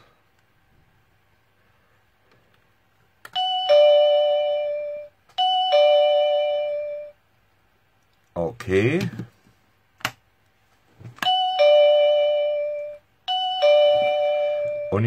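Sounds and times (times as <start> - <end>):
doorbell ding-dong chime: 3.4 - 7.1, 11.2 - 15.0.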